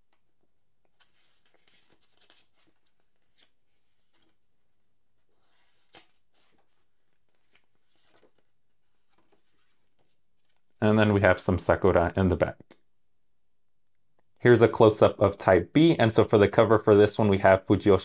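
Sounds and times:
paper pages rustling: 0.0s - 10.8s.

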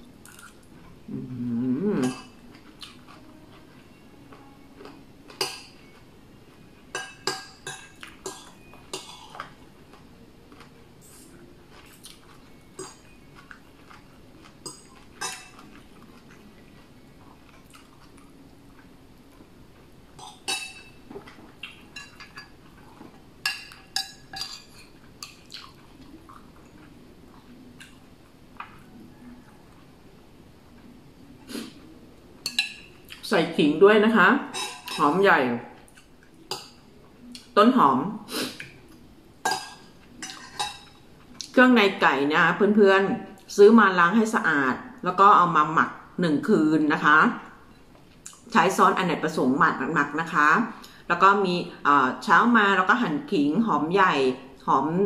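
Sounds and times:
cutlery clinking on dishes: 6.9s - 9.5s, 14.6s - 15.7s, 20.2s - 22.6s, 23.4s - 25.4s, 32.4s - 33.0s, 34.5s - 35.2s, 39.4s - 41.0s.

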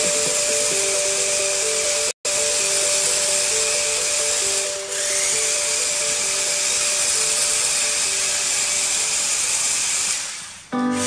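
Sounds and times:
simple stepping tune: 0.0s - 8.4s, 10.8s - 11.0s
music: 0.0s - 9.3s, 10.7s - 11.0s
toy car motor whirring: 0.0s - 11.0s.

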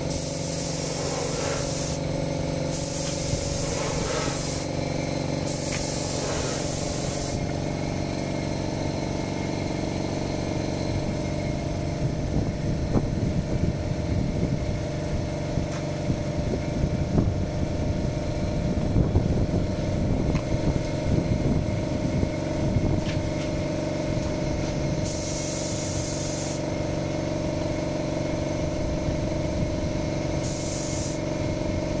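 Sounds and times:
paint spray gun hissing: 0.0s - 11.5s, 23.5s - 27.1s, 29.9s - 32.0s
air compressor hum: 0.0s - 32.0s.

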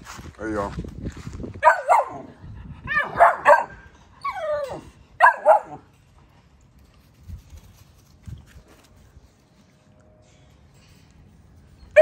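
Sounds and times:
puppies barking and yelping: 1.7s - 5.8s
puppy whining: 4.2s - 5.0s.

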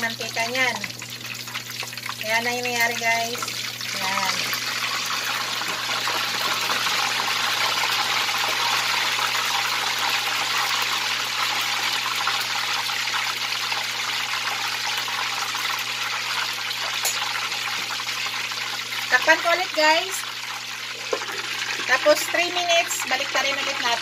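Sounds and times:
oil sizzling loudly: 0.0s - 24.0s.

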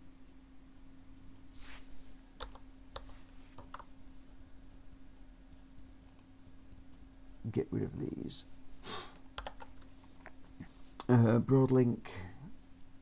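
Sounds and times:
computer keys clicking: 2.4s - 3.9s, 6.0s - 6.3s, 9.2s - 11.2s
faint ticks: 2.4s - 11.2s.

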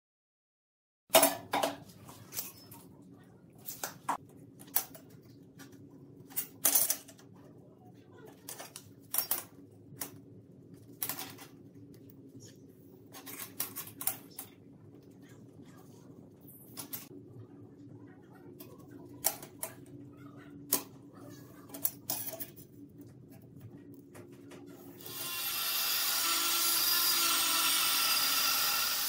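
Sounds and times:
low steady hum: 1.1s - 28.5s
metal tools clinking on steel: 21.7s - 22.7s.

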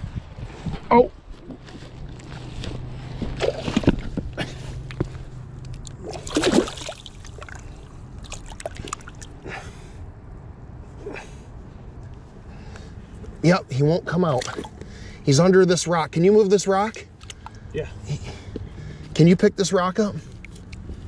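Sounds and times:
light water splashing: 5.6s - 9.4s, 14.4s - 14.8s.

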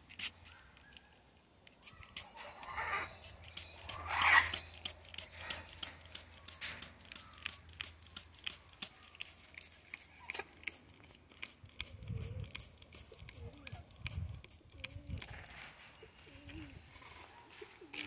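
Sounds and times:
sharp clicks and crackles: 0.0s - 16.0s
parrot squawk: 3.9s - 4.6s.

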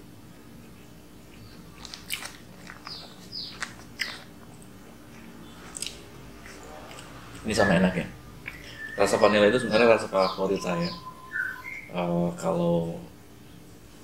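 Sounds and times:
person chewing soft cake: 0.3s - 7.5s
wet mouth clicks and smacks: 1.8s - 7.1s.

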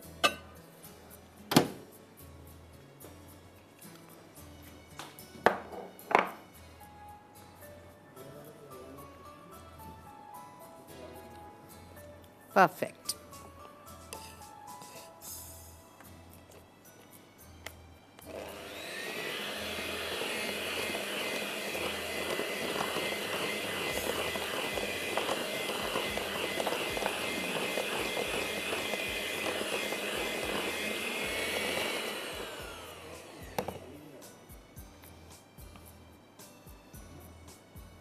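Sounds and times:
appliance motor spinning: 18.2s - 33.9s.

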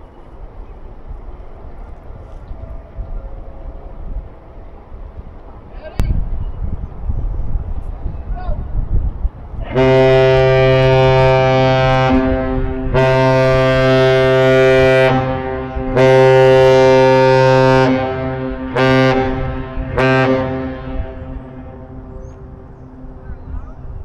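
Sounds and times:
ship horn blasts: 9.6s - 24.0s.

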